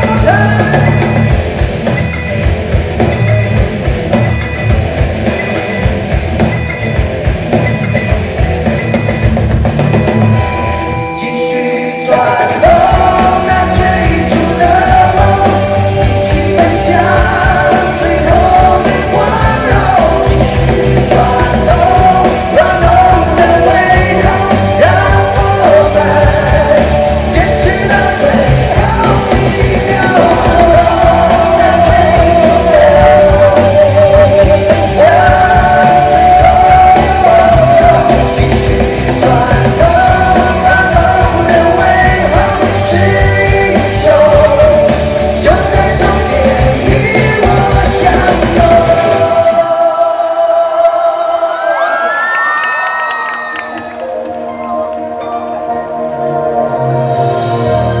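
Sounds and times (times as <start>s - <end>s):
man singing into microphone: 0.0s - 1.2s, 10.9s - 52.2s
rock backing music: 0.0s - 51.5s, 53.3s - 58.0s.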